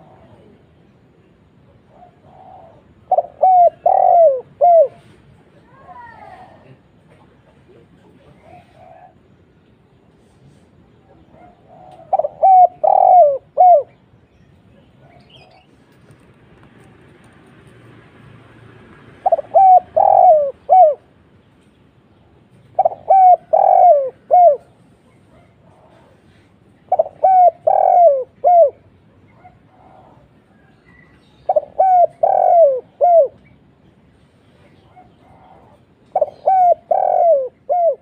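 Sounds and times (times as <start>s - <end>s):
dove cooing: 0.0s - 0.6s, 1.6s - 5.2s, 8.2s - 9.3s, 11.2s - 14.0s, 19.2s - 21.2s, 22.6s - 33.5s, 34.7s - 38.0s.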